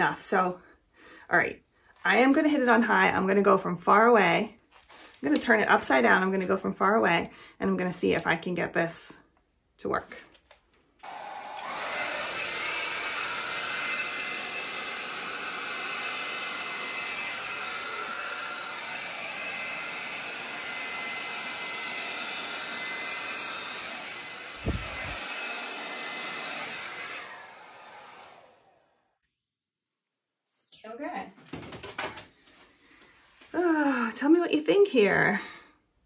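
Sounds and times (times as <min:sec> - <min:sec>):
hair dryer blowing air: 0:11.0 - 0:29.0.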